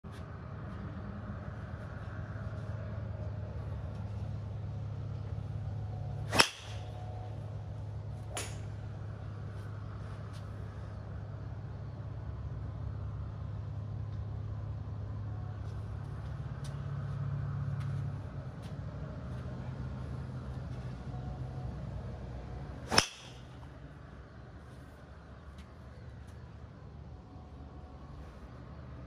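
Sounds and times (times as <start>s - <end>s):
steady low hum: 0.1s - 29.0s
golf club striking ball: 6.3s - 7.0s, 8.3s - 8.7s, 22.8s - 23.5s.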